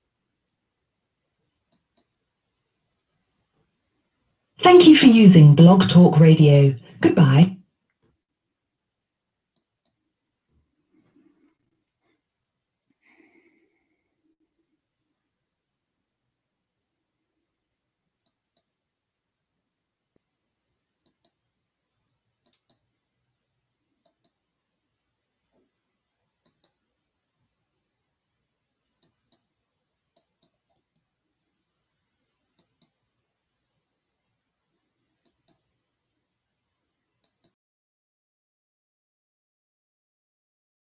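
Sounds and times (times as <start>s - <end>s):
faint sharp clicks: 1.7s - 2.1s, 21.0s - 21.4s, 22.4s - 22.8s, 24.0s - 24.4s, 26.4s - 26.8s, 37.2s - 37.6s.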